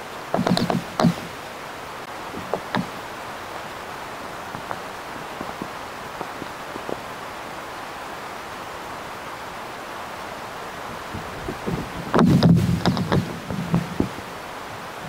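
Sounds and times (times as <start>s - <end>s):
steady microphone hiss: 0.0s - 15.0s
sharp knocks: 0.3s - 1.3s, 2.4s - 3.0s, 12.1s - 14.2s
faint ticks: 4.4s - 7.1s.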